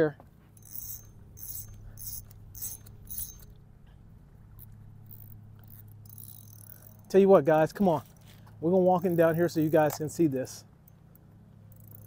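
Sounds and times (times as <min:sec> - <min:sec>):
low steady hum: 0:00.2 - 0:12.0
fishing reel whir-click: 0:00.6 - 0:03.6, 0:04.6 - 0:07.2, 0:11.7 - 0:12.0.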